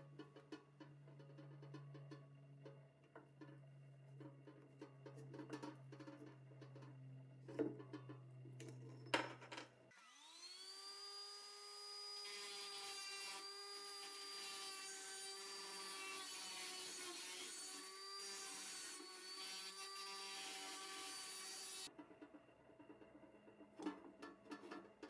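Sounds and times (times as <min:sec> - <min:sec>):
small electric power tool running: 0:09.9 - 0:21.9
tool scraping rusty steel: 0:12.4 - 0:21.9.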